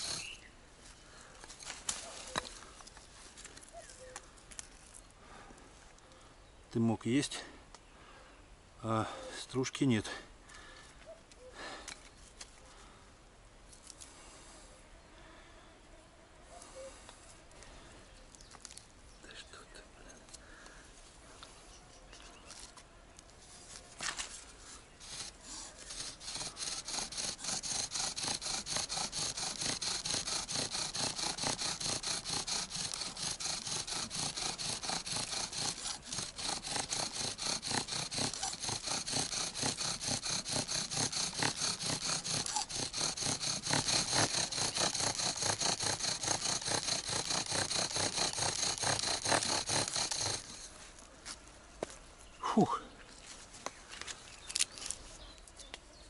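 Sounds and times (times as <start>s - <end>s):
bow drill grinding into bark: 0.0s - 0.5s, 25.0s - 50.8s.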